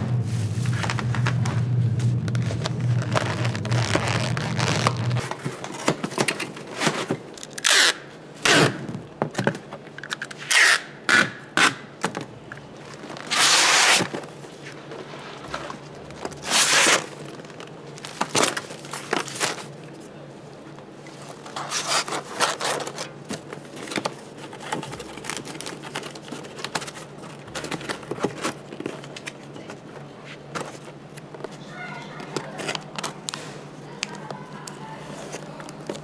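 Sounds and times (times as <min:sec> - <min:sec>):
low steady hum: 0:00.0 - 0:07.5
utensil scrapes and rustles: 0:21.2 - 0:23.1.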